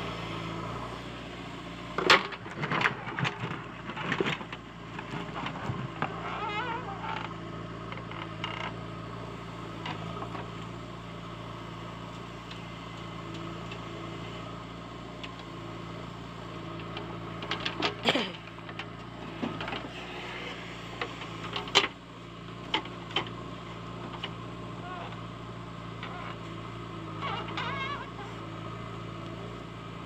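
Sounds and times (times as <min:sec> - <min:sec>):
diesel engine running: 0:00.0 - 0:30.0
hydraulic creaks: 0:05.2 - 0:08.9, 0:25.9 - 0:28.5.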